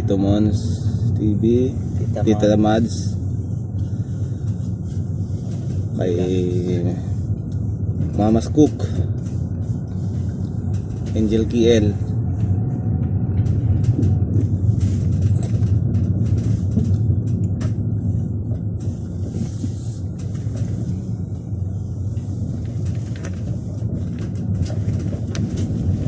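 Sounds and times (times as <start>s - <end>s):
vehicle engine and road noise: 0.0s - 26.0s.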